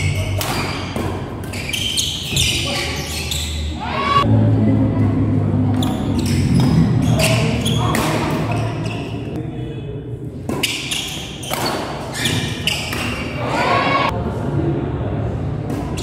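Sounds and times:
shoes squeaking on court floor: 0.4s - 3.8s, 5.8s - 9.4s, 10.5s - 13.4s
spectators' voices: 12.7s - 16.0s.

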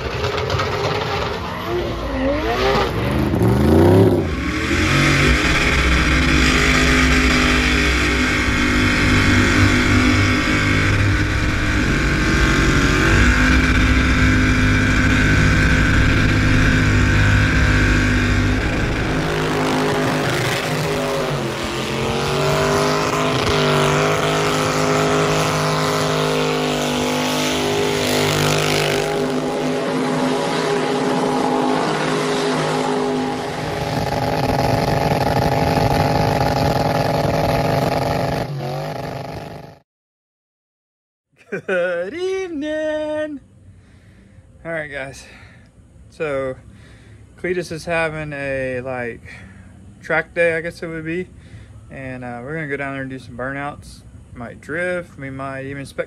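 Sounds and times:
engines revving hard: 0.0s - 39.8s.

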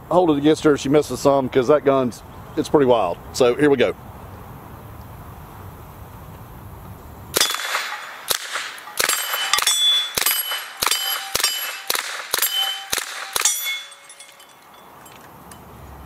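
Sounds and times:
suppressed machine gun firing: 7.4s - 13.6s
steel targets clanging: 7.4s - 15.7s.

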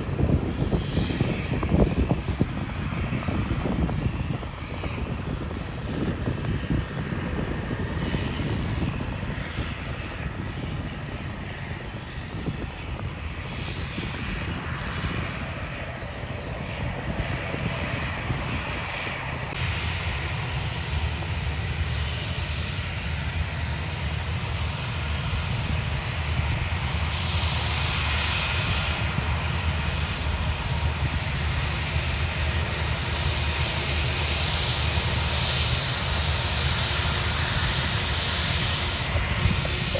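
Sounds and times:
aircraft engine rushing: 0.0s - 39.9s.

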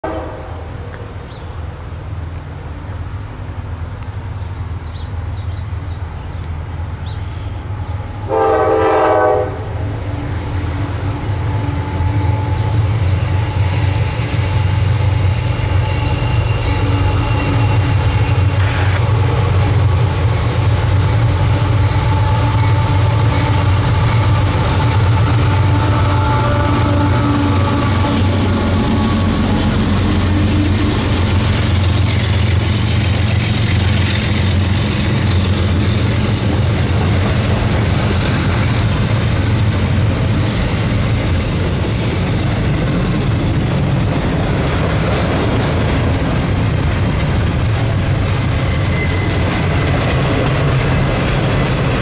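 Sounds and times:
train horn blast: 0.0s - 0.9s, 8.2s - 10.0s, 15.6s - 19.5s, 21.4s - 31.2s
diesel locomotive engine rumble: 0.0s - 52.0s.

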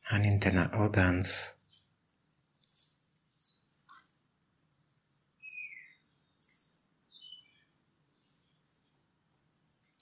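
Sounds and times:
bird chirping: 1.1s - 4.1s, 5.4s - 9.0s.

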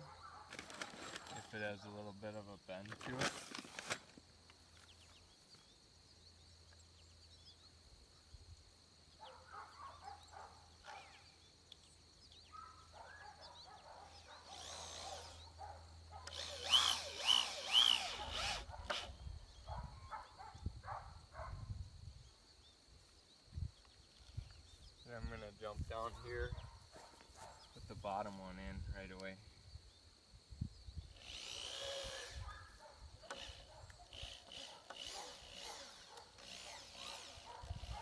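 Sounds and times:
cordless drill driving screws: 14.1s - 15.5s, 16.2s - 19.2s, 31.1s - 32.4s, 33.3s - 38.0s.

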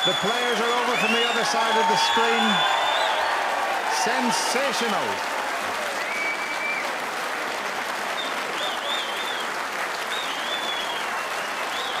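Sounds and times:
audience applauding: 0.0s - 12.0s.

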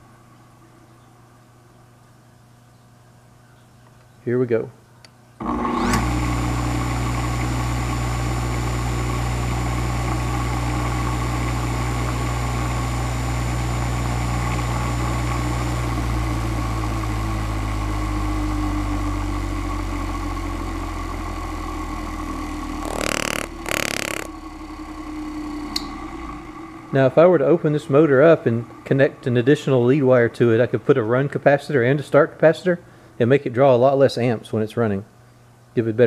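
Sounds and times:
electric motor humming: 22.6s - 24.4s.

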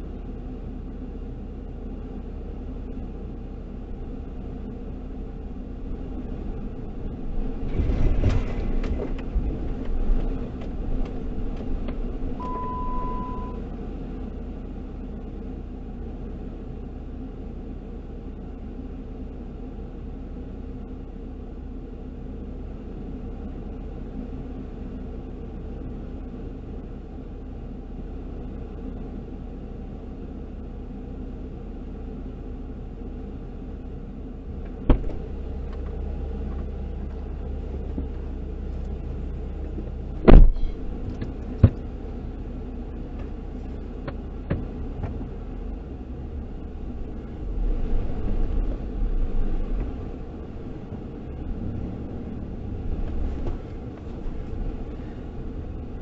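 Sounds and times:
vehicle engine rumbling: 0.0s - 56.0s
sharp clunks: 34.7s - 35.9s, 40.2s - 41.8s.

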